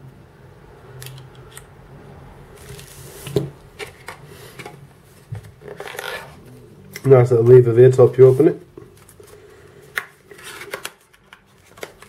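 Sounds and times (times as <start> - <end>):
cardboard packaging rustling: 2.6 - 6.6, 10.1 - 12.0.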